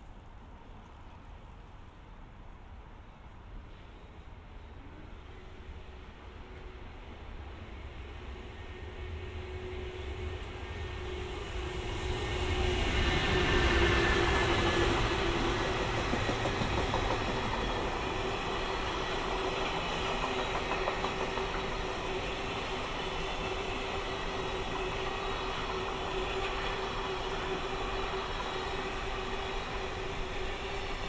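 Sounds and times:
freight train rumble: 3.6s - 31.0s
wheels clacking over rail joints: 15.3s - 18.0s, 19.6s - 22.2s.

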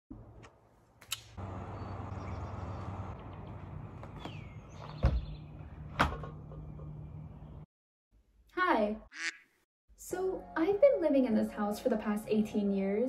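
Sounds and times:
low outdoor hum: 0.2s - 7.7s
falling bird chirp: 1.7s - 6.0s
front door shutting with a thud: 4.2s - 6.4s.

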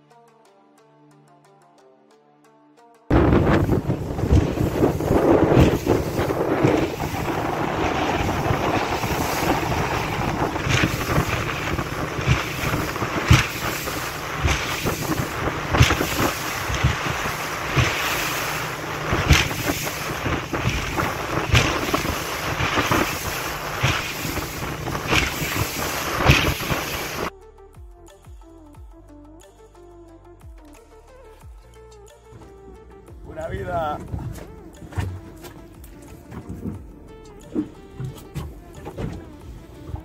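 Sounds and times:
sea water rushing: 3.1s - 27.3s
water slapping against hull: 3.1s - 27.3s, 33.3s - 40.0s
wind buffeting microphone: 3.1s - 27.3s.

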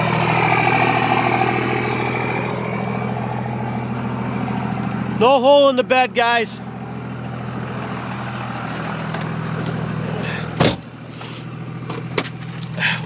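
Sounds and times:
diesel engine running: 0.0s - 13.0s
single thump: 10.6s - 10.9s.

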